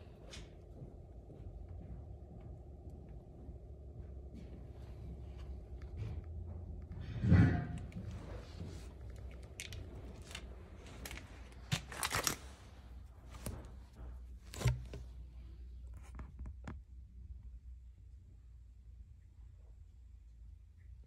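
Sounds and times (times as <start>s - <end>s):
low hum: 0.0s - 21.0s
cloth rustling: 8.4s - 16.2s.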